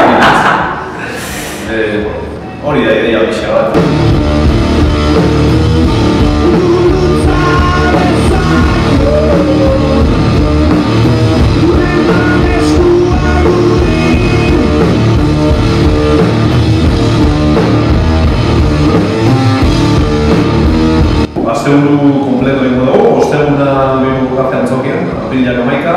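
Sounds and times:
drum kit: 3.6 - 23.3
electric guitar: 3.8 - 21.4.

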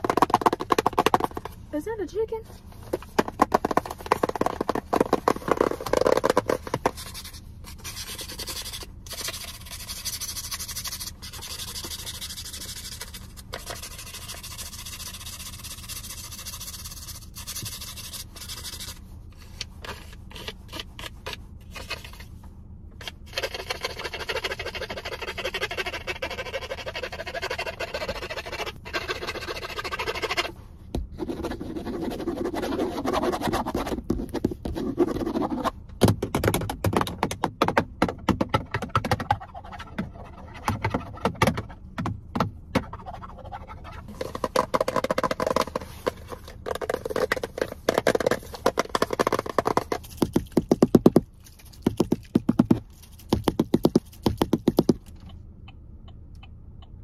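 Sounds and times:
low steady hum: 0.0 - 57.0
fingernails scratching a surface: 3.0 - 22.3, 23.3 - 35.7, 42.8 - 55.0
fingernails tapping on a box: 51.9 - 55.0.

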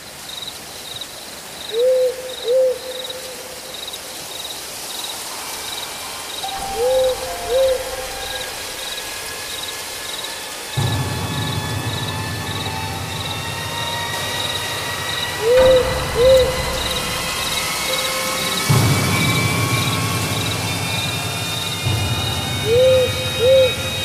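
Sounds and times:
crickets chirping: 0.0 - 24.0
owl hooting: 1.7 - 3.5, 6.4 - 10.2, 12.2 - 18.8, 22.2 - 24.0
low rumble: 6.4 - 24.0.

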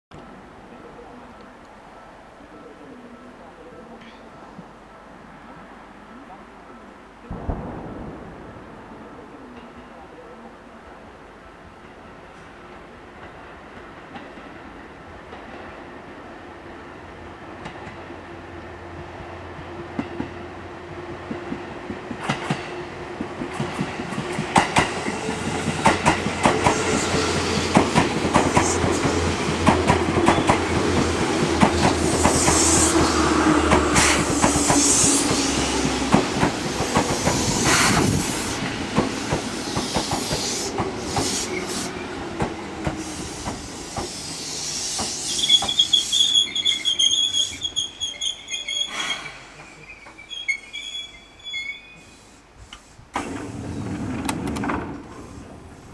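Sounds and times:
train brake squeal: 43.0 - 52.4
wheels clicking over rail joints: 52.7 - 55.6.

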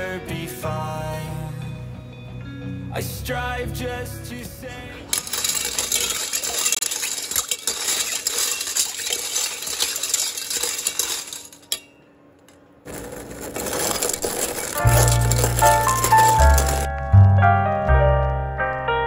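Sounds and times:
metal piping tips clinking in pot: 5.1 - 12.0, 13.8 - 16.9
boiling water: 5.3 - 11.6.

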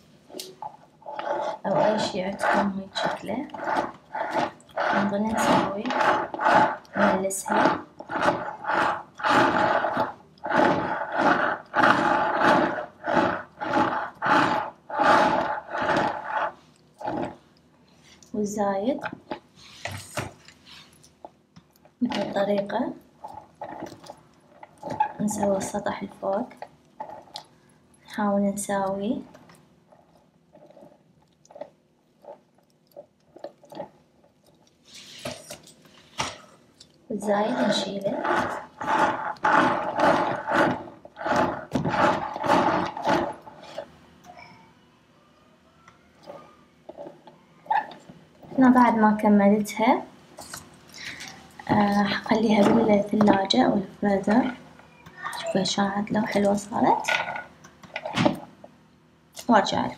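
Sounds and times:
cake scraper rasping through icing: 0.4 - 17.4, 23.2 - 27.4, 37.2 - 43.9.

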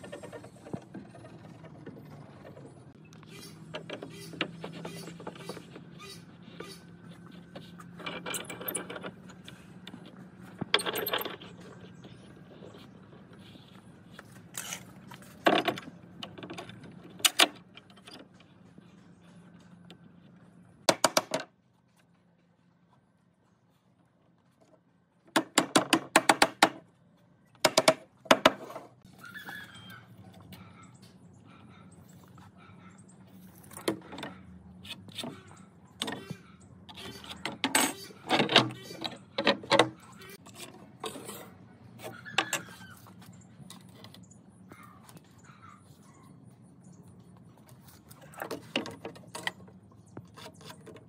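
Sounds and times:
metal clamps clinking and knocking: 8.0 - 9.6, 10.6 - 11.8.

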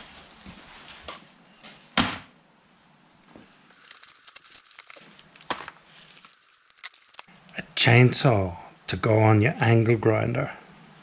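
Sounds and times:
plastic bag tearing open: 3.7 - 5.2, 5.9 - 7.3.

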